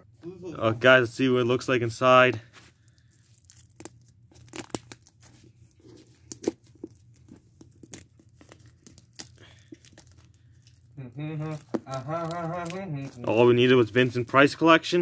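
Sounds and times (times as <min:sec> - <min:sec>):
plastic wrap crinkling and tearing: 0:02.5 - 0:15.0
plastic wrap snapping: 0:02.9 - 0:14.5.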